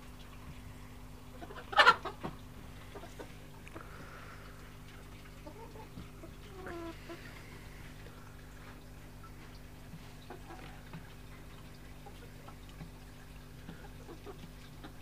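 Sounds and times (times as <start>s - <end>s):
chickens clucking: 1.2s - 7.8s, 9.2s - 15.0s
chicken squawking: 1.4s - 2.3s.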